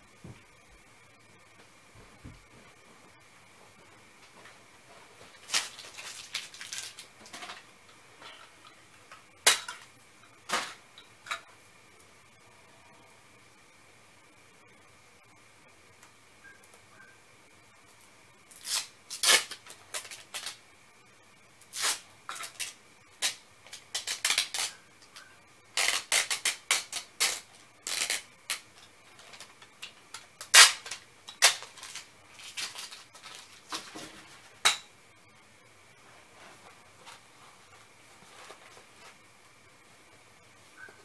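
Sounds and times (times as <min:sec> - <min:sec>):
packing materials crinkling: 0:05.3 - 0:07.4, 0:25.8 - 0:34.2.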